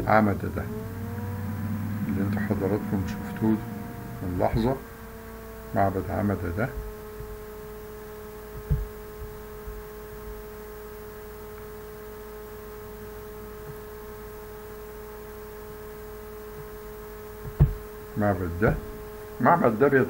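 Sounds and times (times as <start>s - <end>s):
faint low rumble: 0.0s - 5.3s
electrical hum: 0.0s - 20.0s
short low thump: 17.5s - 17.8s.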